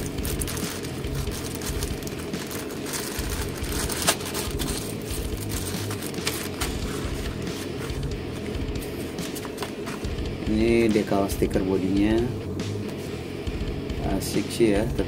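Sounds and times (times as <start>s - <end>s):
plastic bags crinkling: 0.0s - 7.7s.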